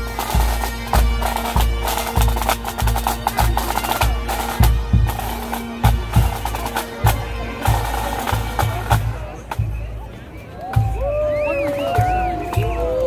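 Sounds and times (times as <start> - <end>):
bagpipe drones: 0.0 - 9.8.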